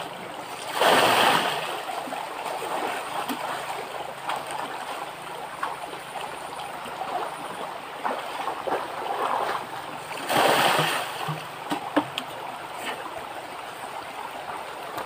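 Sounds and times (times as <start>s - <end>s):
stream water running: 0.0s - 15.0s
people splashing in water: 8.0s - 12.0s.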